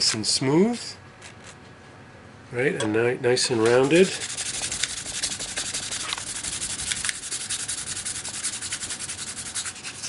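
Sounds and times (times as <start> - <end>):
sandpaper scratching metal edge: 3.7 - 10.0.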